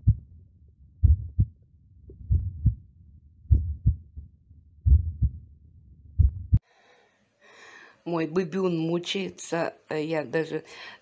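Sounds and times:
heartbeat thumps: 0.0s - 0.3s, 1.0s - 2.8s, 3.5s - 5.5s, 6.1s - 6.6s.

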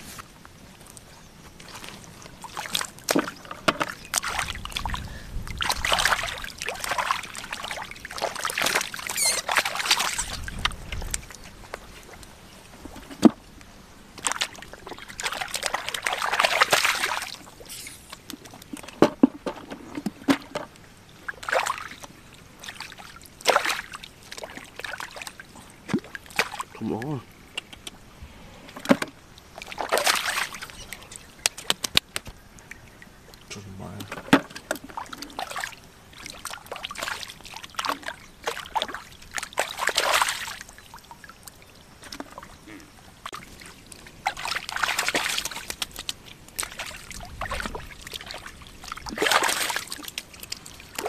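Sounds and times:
water sloshing and splashing: 0.0s - 27.4s, 28.2s - 51.0s
sharp slaps on water: 31.4s - 32.4s.

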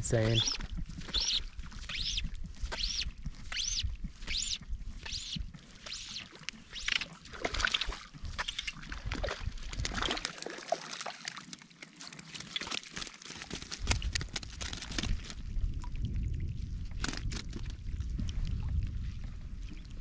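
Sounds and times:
fish splashing in water: 0.2s - 15.6s.

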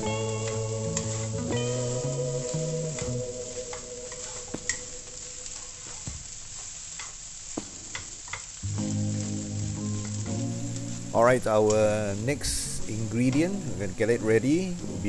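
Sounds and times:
rice and egg sizzling in a wok: 0.0s - 13.9s
wooden spatula scraping a pan: 0.1s - 1.8s.

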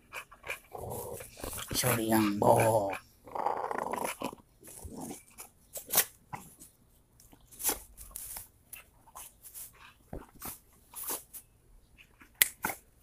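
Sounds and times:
dogs play-fighting and scuffling: 7.4s - 12.9s.

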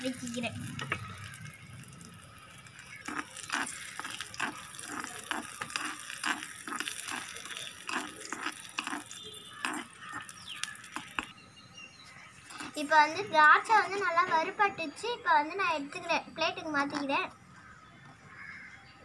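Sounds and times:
raisins sizzling in ghee: 0.0s - 11.3s, 12.0s - 17.1s
metal spoon scraping clay pot: 2.6s - 11.3s, 12.4s - 14.0s.

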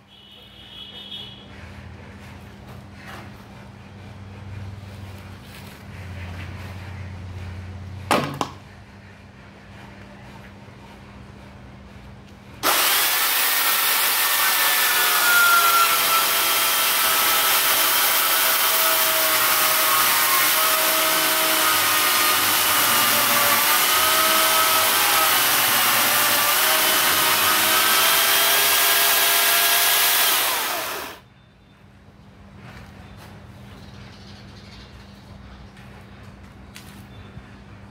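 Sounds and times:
electric chainsaw cutting wood: 12.6s - 31.2s.

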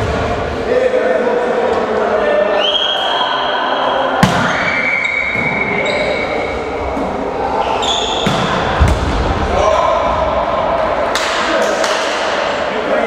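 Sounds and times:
players' voices: 0.0s - 13.0s
volleyball smacking: 4.2s - 4.6s.

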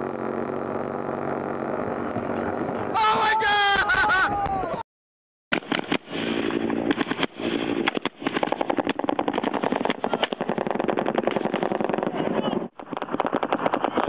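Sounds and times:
rapid automatic gunfire: 6.9s - 14.0s.

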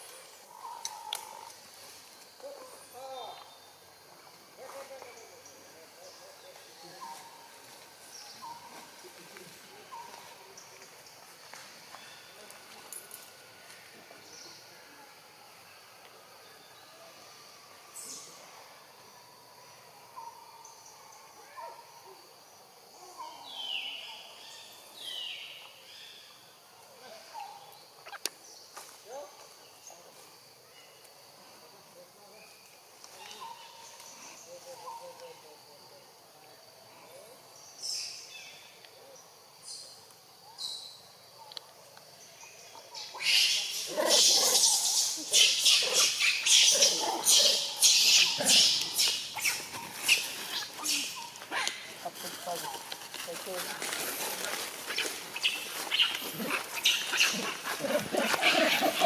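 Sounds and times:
insect hum: 0.0s - 59.0s
monkey harsh calls: 43.0s - 52.2s, 54.9s - 59.0s.

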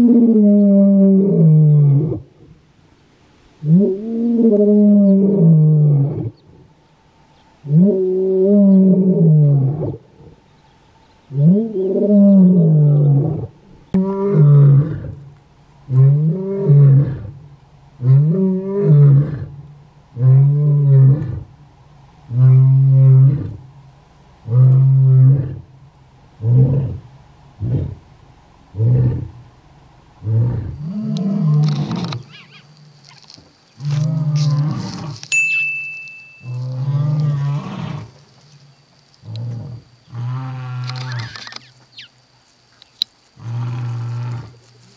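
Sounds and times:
lion roaring: 3.6s - 6.4s, 7.6s - 10.4s, 11.3s - 21.5s, 22.3s - 23.7s, 24.4s - 25.7s, 26.3s - 29.5s, 30.2s - 32.7s, 33.8s - 35.2s, 36.6s - 38.1s, 39.2s - 41.6s, 43.4s - 44.6s.

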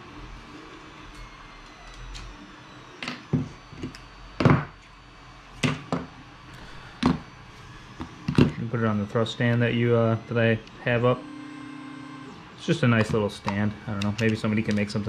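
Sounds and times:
hard objects knocking on workbench: 3.3s - 4.7s, 5.6s - 6.1s.

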